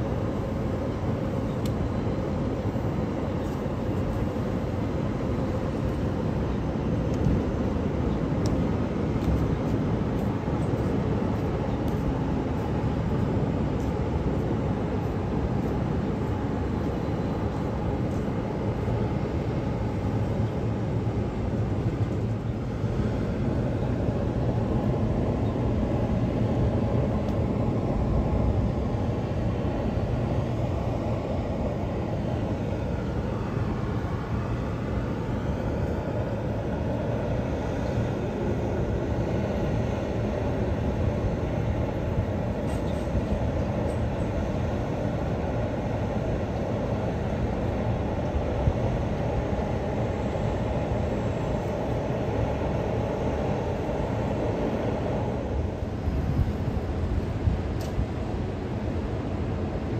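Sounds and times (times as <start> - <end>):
train rumble: 0.0 - 59.9.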